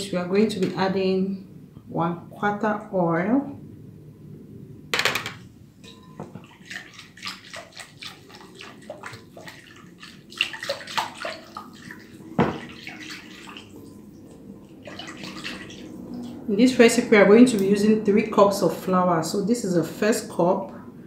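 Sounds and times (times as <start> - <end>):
whisk beating liquid in bowl: 5.8 - 14.1.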